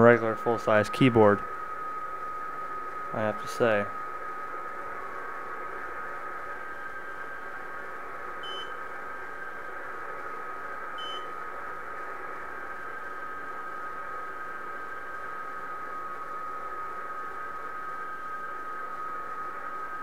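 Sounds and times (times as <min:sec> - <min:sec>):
steady digital signal tones: 0:00.0 - 0:15.9
radio band noise hiss: 0:00.0 - 0:20.0.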